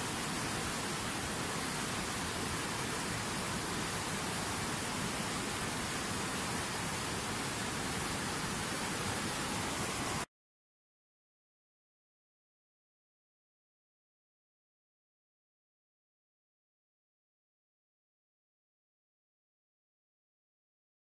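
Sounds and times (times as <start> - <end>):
steady rushing noise: 0.0 - 10.3.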